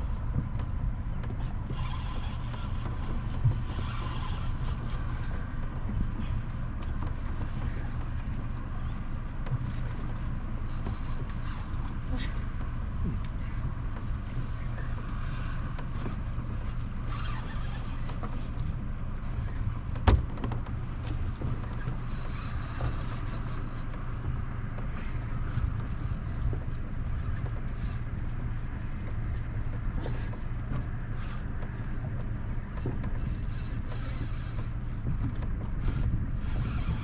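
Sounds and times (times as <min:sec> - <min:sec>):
water noise: 0:00.0 - 0:37.0
wind: 0:00.0 - 0:37.0.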